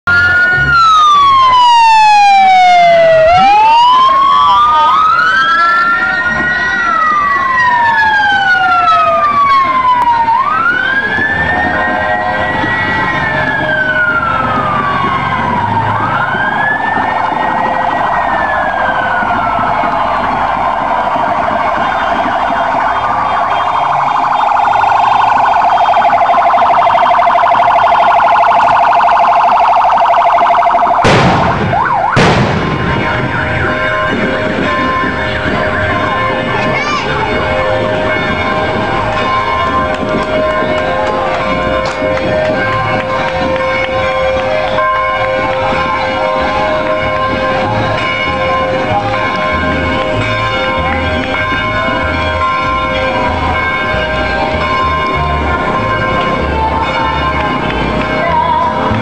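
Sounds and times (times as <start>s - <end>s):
electronic sirens wailing: 0.0s - 59.0s
siren fast warble: 0.1s - 36.5s.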